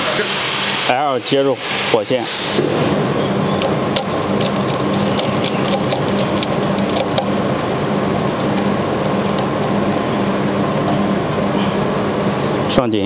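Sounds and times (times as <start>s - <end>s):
steady mechanical drone: 0.0s - 13.0s
screwdriver ticking: 3.6s - 7.4s.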